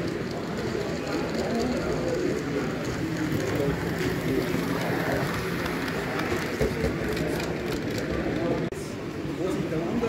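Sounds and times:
murmur of distant voices: 0.0 - 10.0.

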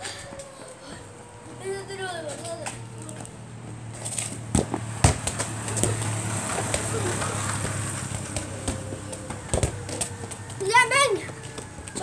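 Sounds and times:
football kicked on concrete: 4.3 - 10.4.

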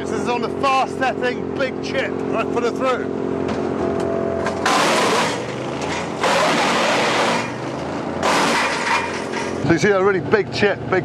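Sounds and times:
petrol engine running: 0.0 - 11.0
wood chipper chipping log: 4.5 - 9.7.

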